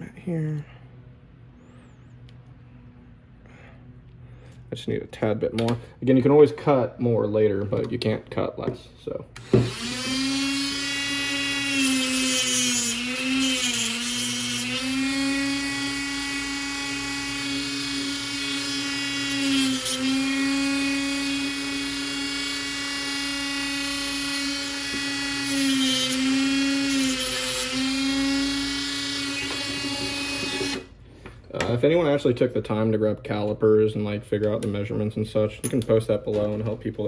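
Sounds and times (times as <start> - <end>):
rotary tool whining: 9.4 - 30.9.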